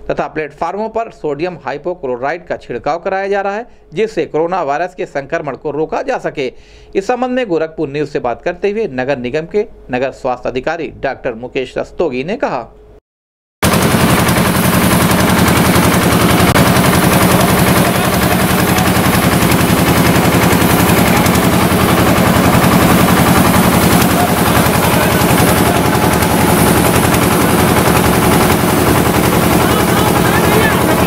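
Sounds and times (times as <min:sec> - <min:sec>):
sprayer pump engine rattling: 0:13.6 - 0:31.0.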